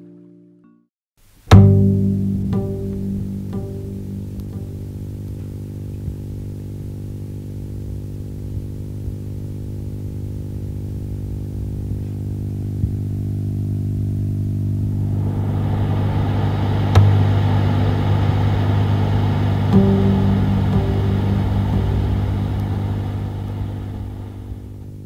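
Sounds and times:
low sustained drone: 2.1 - 12.8, 13.4 - 25.0
hissing texture: 14.8 - 24.8
sharp hit: 14.9 - 24.8.

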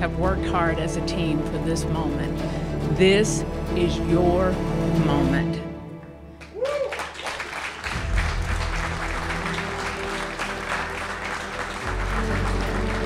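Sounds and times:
music playing: 0.0 - 13.0
crowd applauding: 6.4 - 13.0.

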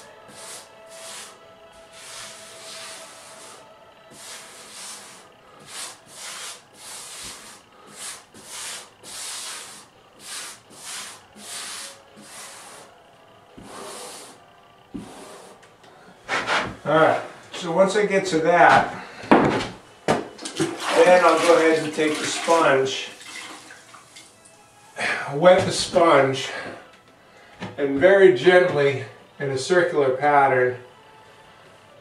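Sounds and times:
grout float scraping on tile: 2.0 - 12.9, 20.8 - 22.6.

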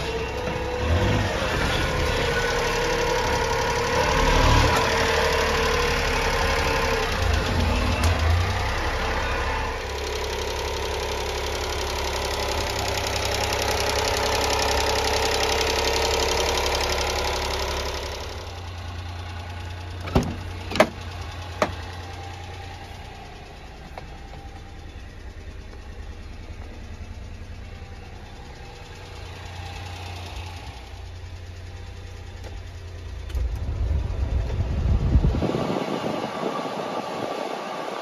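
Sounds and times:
truck engine idling: 0.0 - 38.0
cab door clacks: 20.0 - 21.0, 21.6 - 21.9.

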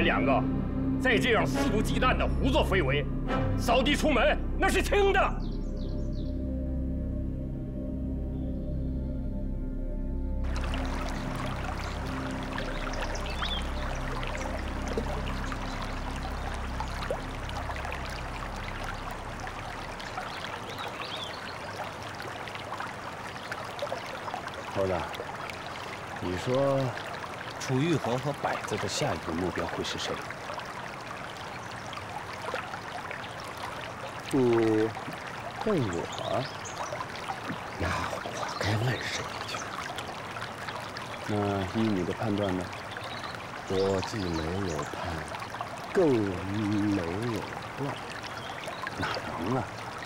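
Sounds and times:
low background music: 0.0 - 20.8
flowing water rushing: 10.4 - 50.0
short low vocal sounds: 49.0 - 49.7.

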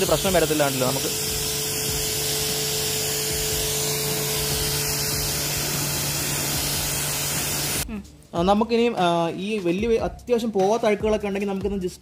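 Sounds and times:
high-pressure water spray hissing: 0.0 - 7.8
pressure washer motor hum: 0.0 - 7.8.

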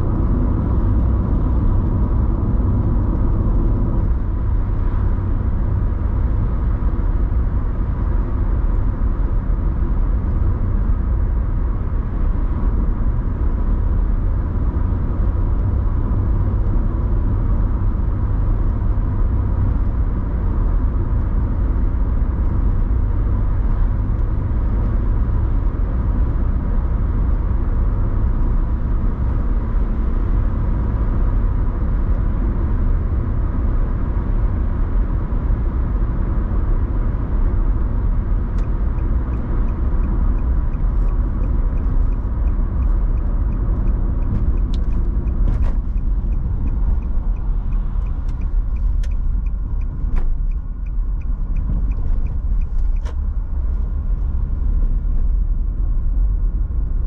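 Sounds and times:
tyre and engine rumble: 0.0 - 57.0
faint regular ticking: 38.6 - 53.2.

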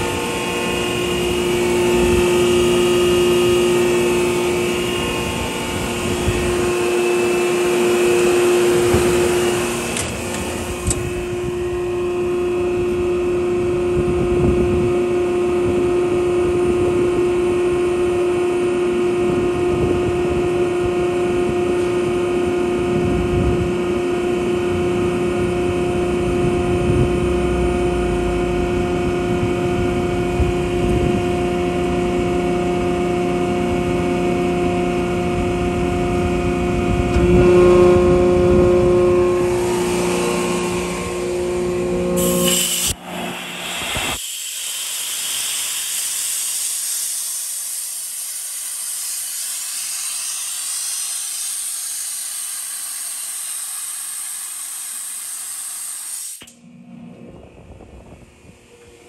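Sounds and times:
air compressor humming: 0.0 - 14.8, 35.0 - 56.6
high hiss: 39.3 - 56.5.

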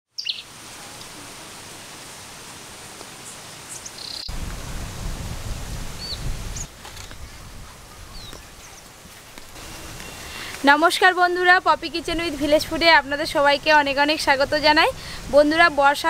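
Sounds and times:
bird chirps: 0.1 - 0.5, 3.7 - 4.3, 7.6 - 8.9
steady hiss: 0.2 - 16.0.

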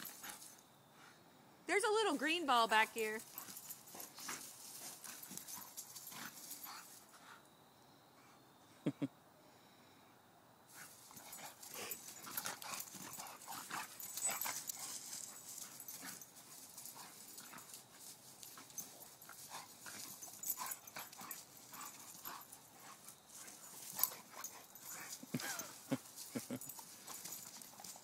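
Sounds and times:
paws scuffling on dry grass: 3.2 - 7.2, 10.8 - 28.0
dog noises: 10.8 - 28.0.

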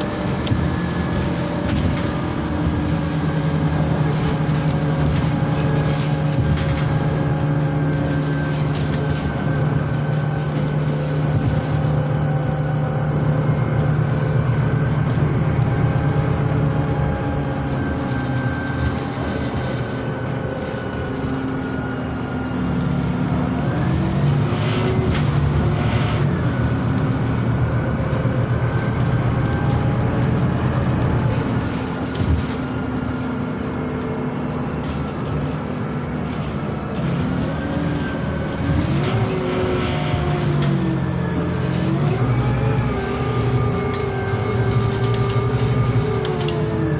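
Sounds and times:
bus engine humming: 0.0 - 46.9
road noise: 0.0 - 46.9.

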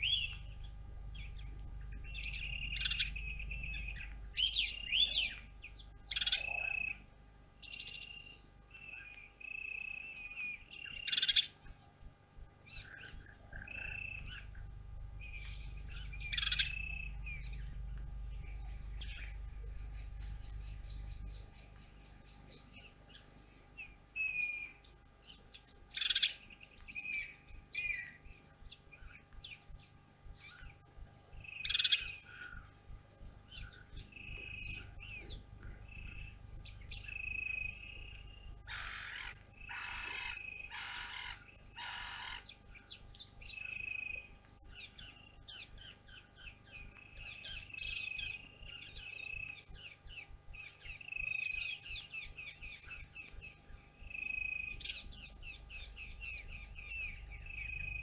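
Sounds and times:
birds chirping and whistling: 0.0 - 7.0, 7.6 - 58.0
harsh bird calls: 0.0 - 11.7, 12.7 - 58.0.

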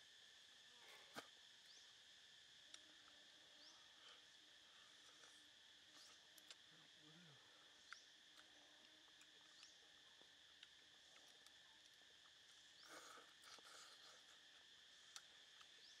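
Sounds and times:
insects droning: 0.0 - 16.0.

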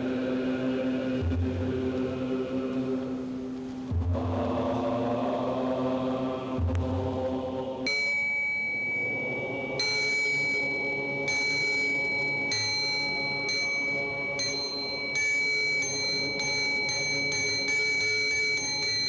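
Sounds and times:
small bell ringing: 7.9 - 19.0.

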